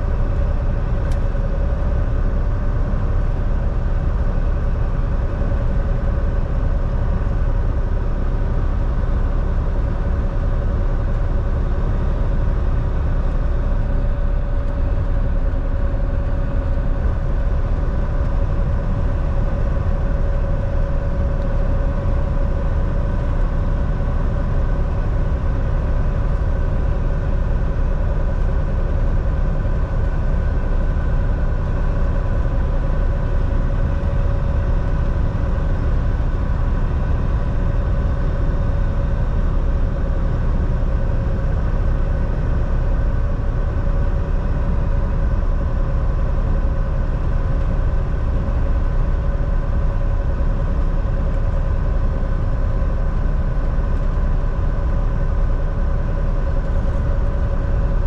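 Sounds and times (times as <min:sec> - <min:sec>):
diesel truck engine drone: 0:00.0 - 0:58.0.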